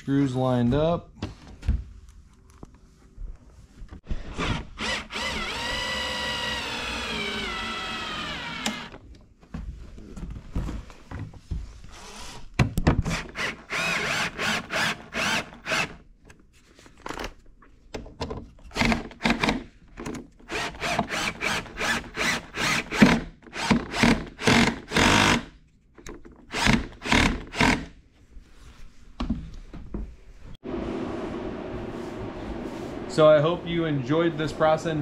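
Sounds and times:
cordless drill driving screws: 0:04.3 - 0:09.0, 0:13.1 - 0:16.0, 0:20.5 - 0:25.5, 0:26.5 - 0:27.9.

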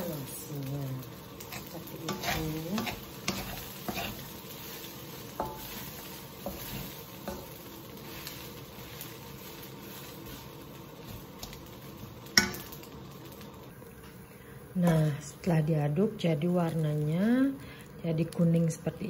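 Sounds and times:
rice sizzling in a wok: 0:00.0 - 0:19.0
wooden spatula scraping a wok: 0:01.0 - 0:12.8
spatula tapping pan: 0:01.4 - 0:04.2, 0:05.3 - 0:05.8, 0:06.4 - 0:07.6, 0:12.4 - 0:12.8.

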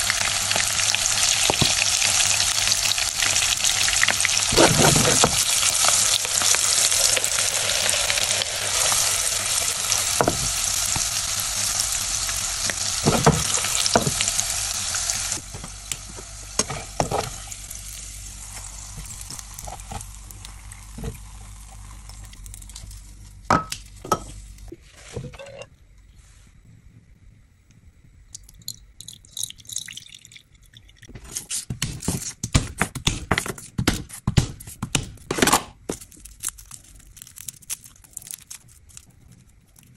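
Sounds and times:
garlic sizzling in hot oil: 0:00.0 - 0:24.7.

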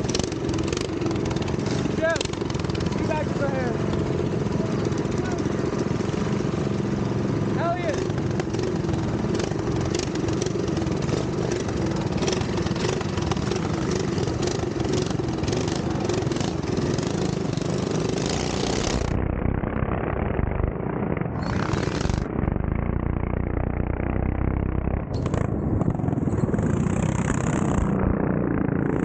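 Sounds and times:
minibike engines: 0:00.0 - 0:29.0.

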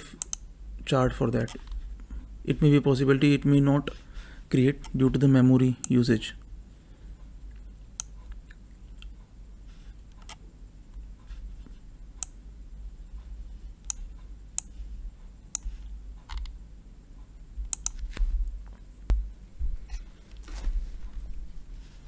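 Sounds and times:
low steady hum: 0:00.0 - 0:22.0
mouse and keyboard clicks: 0:17.7 - 0:18.1.

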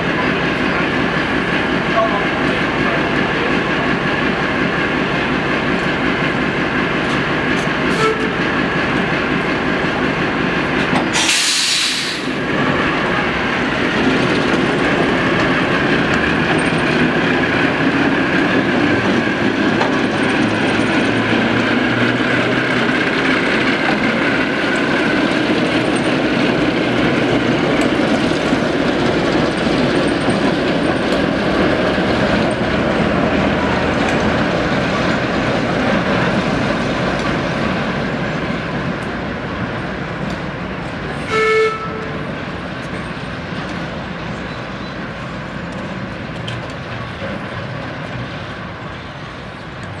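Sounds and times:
diesel locomotive engine running: 0:00.0 - 0:50.0
locomotive horn toot: 0:07.9 - 0:08.5, 0:41.2 - 0:42.4.

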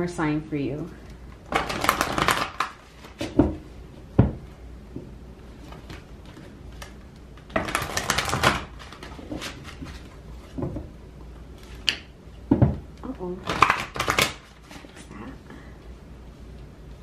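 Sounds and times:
cards being shuffled: 0:01.5 - 0:03.3, 0:05.6 - 0:10.6, 0:13.4 - 0:15.1.

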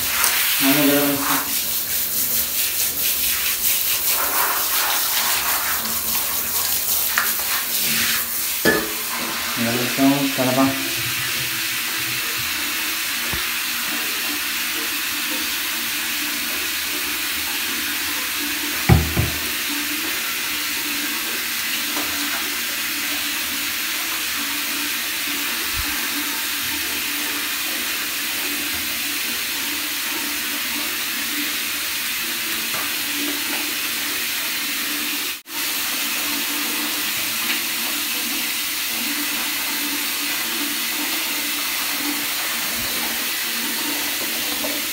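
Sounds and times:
water running into bathtub: 0:00.0 - 0:44.9
low thump: 0:18.9 - 0:19.5.

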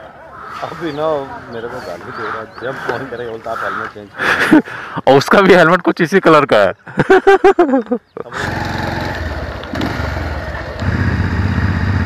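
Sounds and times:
motorcycle engine running: 0:08.3 - 0:12.0.

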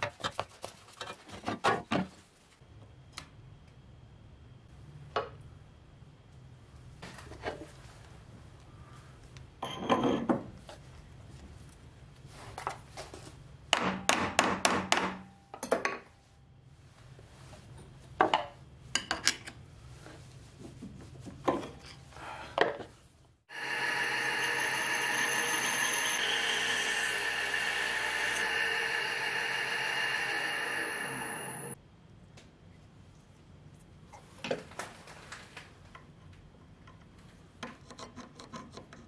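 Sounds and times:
lathe running with whine: 0:23.5 - 0:31.8
turning tool touching spinning metal: 0:23.5 - 0:31.8.

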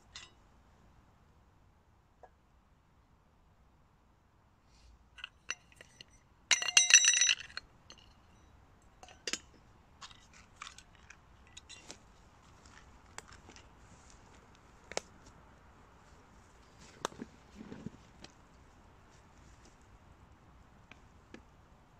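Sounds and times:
metal items clinking: 0:05.2 - 0:08.2
loud ringing metal rattle: 0:05.5 - 0:08.0.

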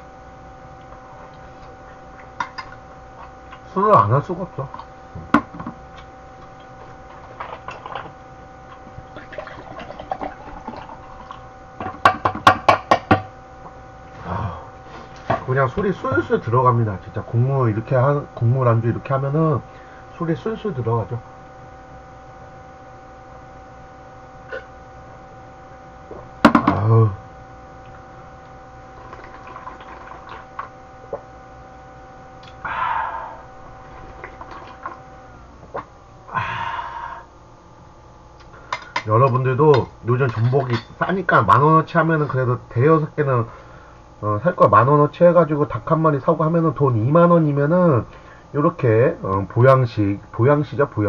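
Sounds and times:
liquid glugging from bottle: 0:08.7 - 0:11.5, 0:29.0 - 0:31.3, 0:34.0 - 0:35.0
man exhaling: 0:32.6 - 0:33.5, 0:36.3 - 0:37.3.

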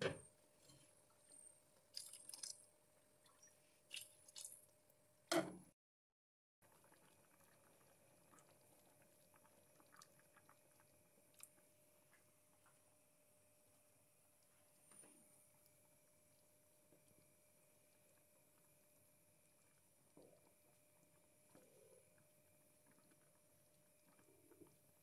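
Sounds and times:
risotto bubbling in a pan: 0:06.6 - 0:25.0.

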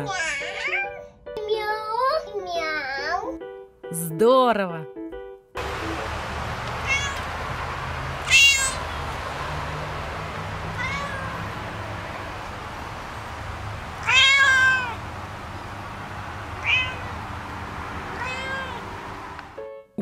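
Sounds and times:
cat meowing: 0:06.8 - 0:07.4, 0:08.2 - 0:09.1, 0:10.6 - 0:11.6, 0:14.0 - 0:15.0, 0:16.6 - 0:17.2, 0:18.1 - 0:18.8.

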